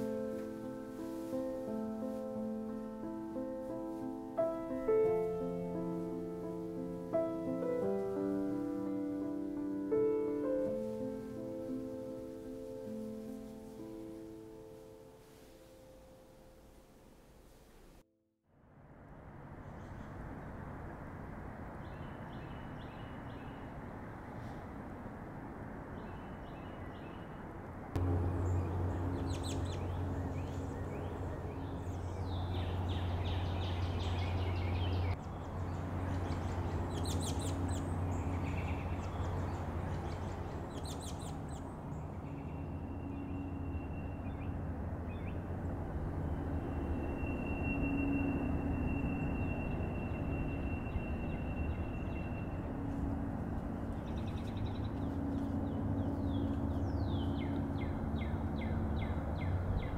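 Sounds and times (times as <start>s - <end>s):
low hum: 18.6s - 59.9s
birds chirping trills: 21.8s - 24.5s, 25.9s - 59.9s
long high whistle: 46.7s - 52.1s.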